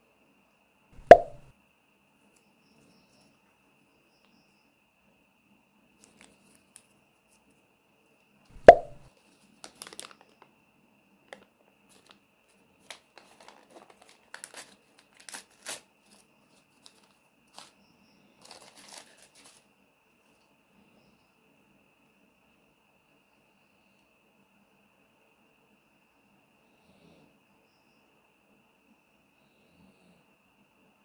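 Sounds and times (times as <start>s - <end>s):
sharp knock: 1.0s - 1.5s, 8.6s - 9.1s
paper crinkling and tearing: 9.6s - 10.3s, 12.9s - 17.7s, 18.4s - 19.6s.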